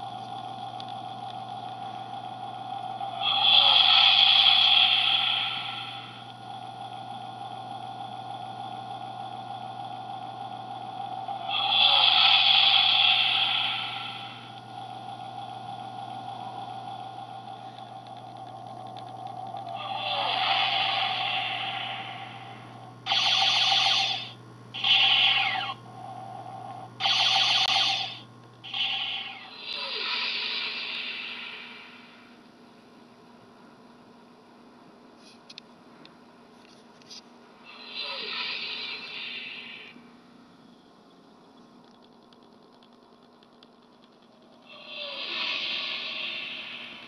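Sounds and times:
electronic spaceship engine hum: 0.0s - 33.2s, 37.0s - 47.0s
falling electronic sweep: 19.7s - 25.8s, 27.0s - 32.0s.

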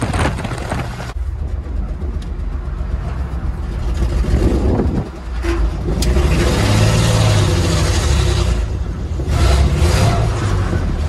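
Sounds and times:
pickup truck engine running: 0.0s - 6.0s.

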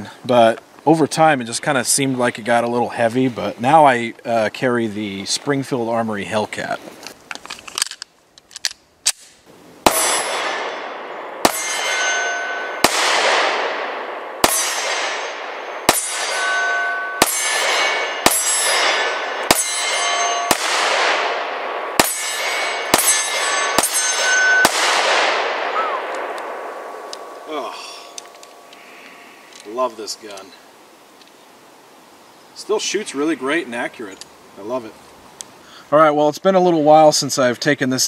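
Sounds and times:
pistol handling clicks: 7.3s - 9.4s, 28.1s - 28.8s
pistol shots with ringing decay: 9.8s - 27.7s.

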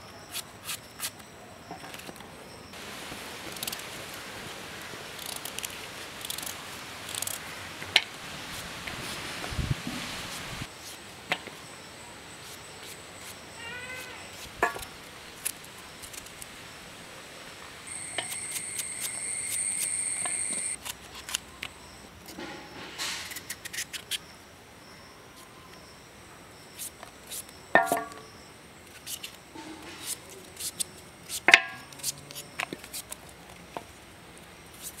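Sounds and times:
high-pitched tone: 17.9s - 20.8s
knife cutting vegetables: 30.0s - 32.2s.

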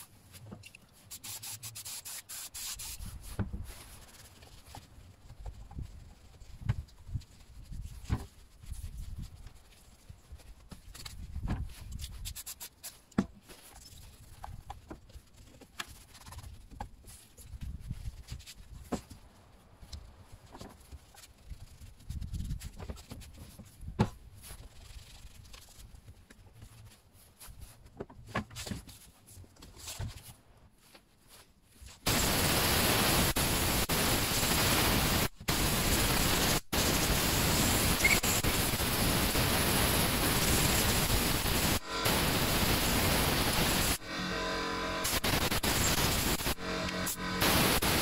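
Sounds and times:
compressed air blow gun hissing: 32.1s - 44.1s, 45.0s - 48.0s.

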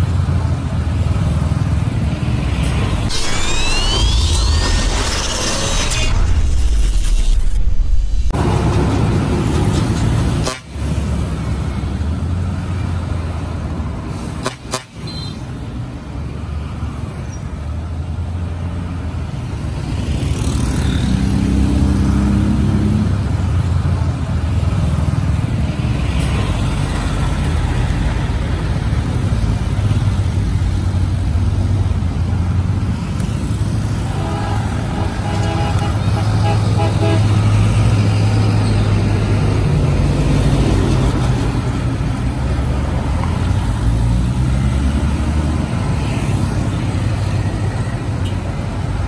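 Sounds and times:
vehicle horn tooting: 34.1s - 37.4s.

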